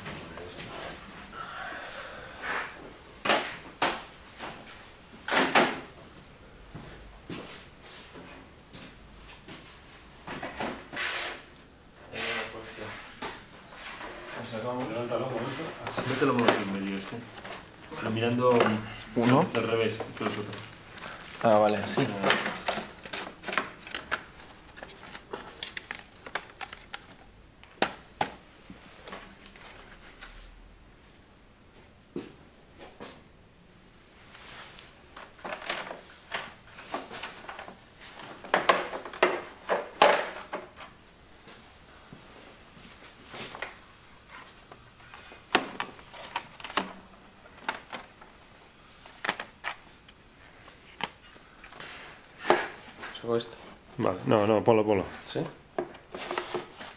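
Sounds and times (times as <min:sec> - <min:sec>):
books knocking and scraping on shelf: 0:12.2 - 0:25.9, 0:35.2 - 0:41.6, 0:51.0 - 0:53.8, 0:55.2 - 0:56.9.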